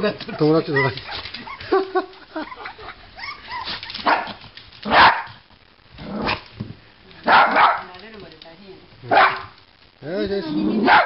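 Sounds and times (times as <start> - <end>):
small dog barking: 3.6 - 5.4, 7.2 - 7.9, 9.1 - 9.6, 10.8 - 11.0.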